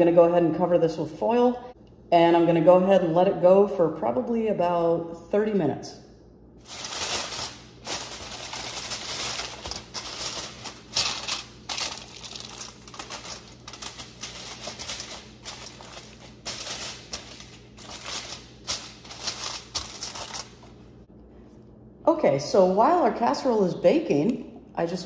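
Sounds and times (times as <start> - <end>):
aluminium foil crinkling: 6.6 - 20.9.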